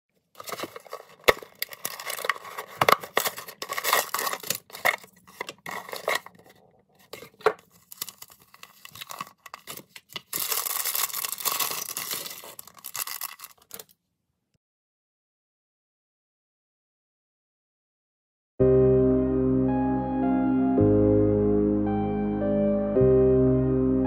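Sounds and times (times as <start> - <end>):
plastic bag crinkling: 0.2 - 13.9
cardboard box tearing: 0.4 - 13.9.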